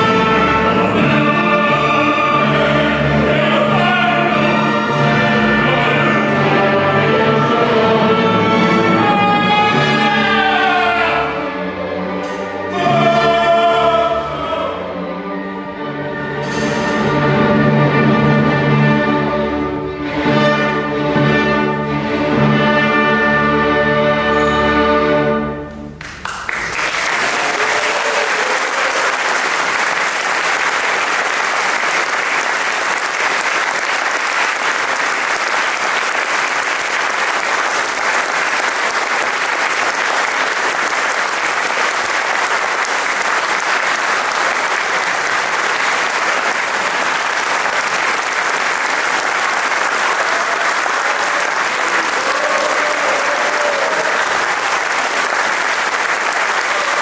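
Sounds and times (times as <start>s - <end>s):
audience applause: 26.0s - 57.0s.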